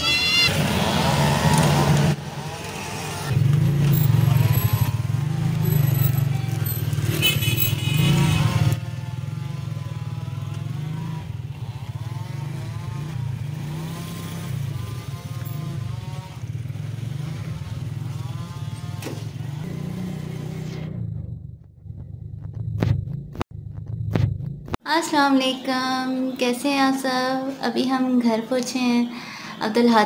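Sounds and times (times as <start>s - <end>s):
high tone: 0.0s - 0.6s
vehicle engine droning: 0.0s - 24.8s.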